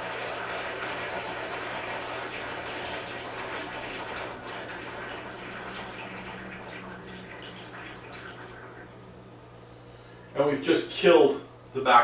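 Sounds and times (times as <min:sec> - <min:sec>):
water gurgling and sucking air: 0:01.1 - 0:09.4.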